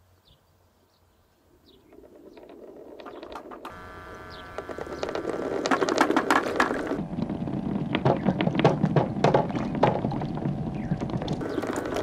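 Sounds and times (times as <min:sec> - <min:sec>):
marbles rolling down wooden chute: 0:04.6 - 0:10.0, 0:11.4 - 0:12.0.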